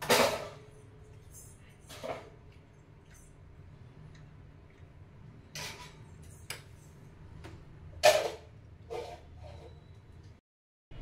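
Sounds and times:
spoon scraping glass bowl: 8.9s - 10.0s.

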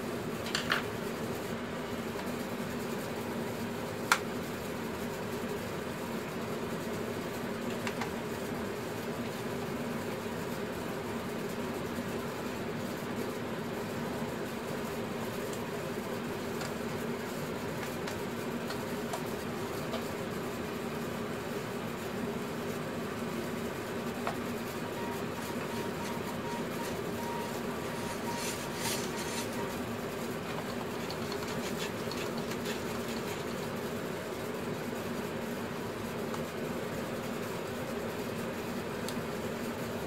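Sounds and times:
mechanical hum: 0.0s - 40.0s
faint clicks and taps: 7.7s - 8.2s, 17.8s - 19.3s, 30.5s - 33.5s.

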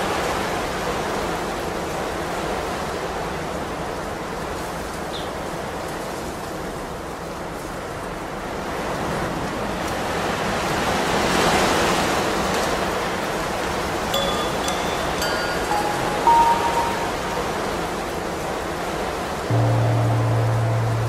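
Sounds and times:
high chirp: 14.2s - 17.8s
steady rushing noise: 19.5s - 21.0s.

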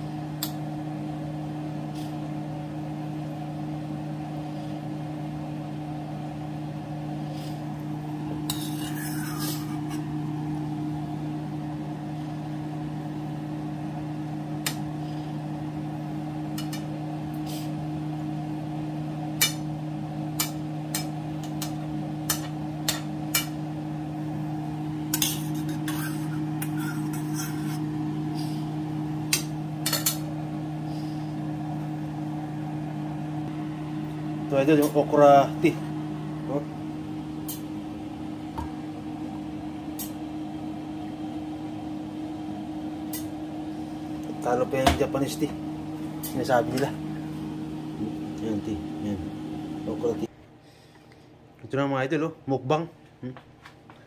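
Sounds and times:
kitchen appliance humming: 0.0s - 51.4s.

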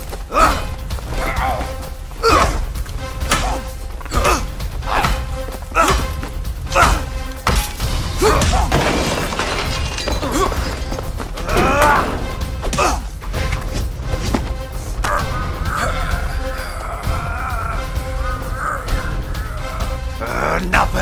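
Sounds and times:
film soundtrack music: 0.0s - 21.0s
impact and crash sounds: 7.4s - 12.8s.

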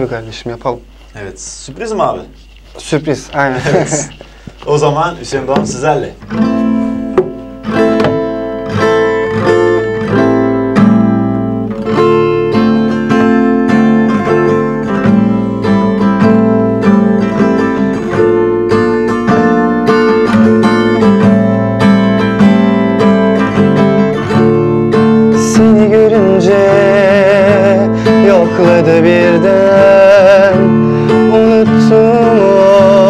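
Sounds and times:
acoustic guitar strumming: 0.0s - 33.0s.

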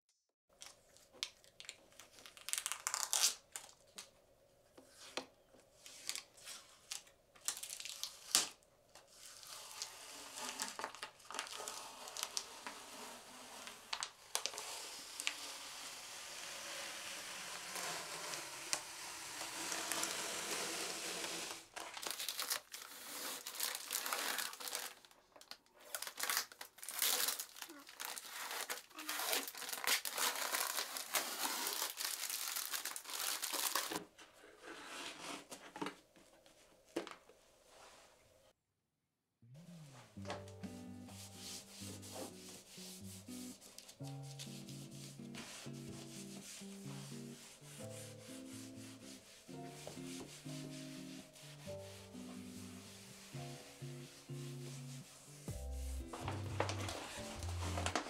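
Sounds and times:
thin sheet material crinkling: 0.5s - 4.1s, 5.9s - 15.9s, 21.6s - 34.0s, 41.2s - 58.0s.

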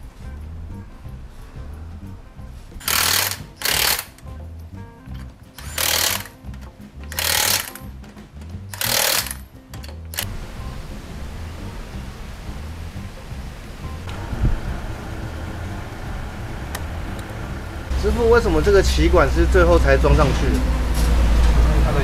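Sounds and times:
background music: 0.0s - 22.0s
impact wrench hammering: 2.8s - 4.2s, 5.6s - 8.0s, 8.7s - 10.3s.

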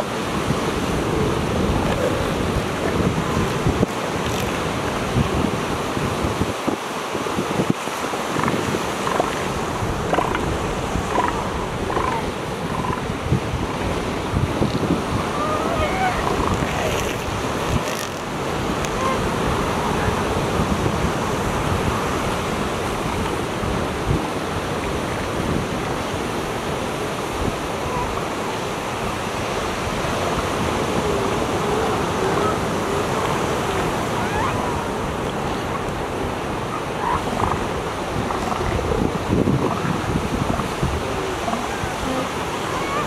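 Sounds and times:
surf: 0.0s - 43.0s
wind: 0.0s - 43.0s
elephant seals calling: 8.2s - 13.2s, 15.2s - 19.5s, 30.1s - 43.0s.

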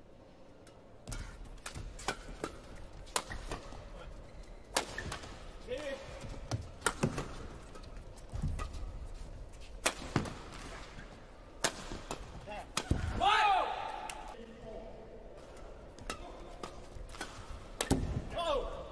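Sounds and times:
rackets striking shuttlecock: 4.7s - 5.5s.

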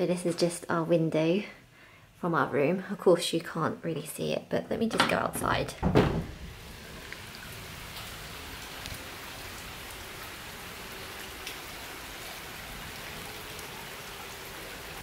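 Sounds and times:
steady rain falling: 6.2s - 15.0s
raindrop ticks: 7.0s - 10.4s, 11.0s - 12.4s.

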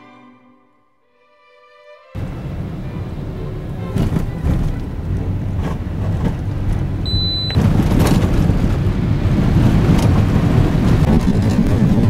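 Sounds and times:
car road and engine noise: 2.2s - 12.0s
short high beep: 7.1s - 7.6s.

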